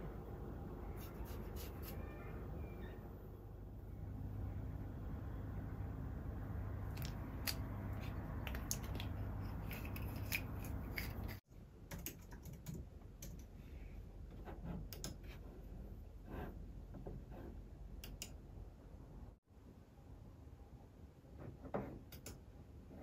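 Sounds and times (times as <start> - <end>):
low hum: 0.0 - 11.4.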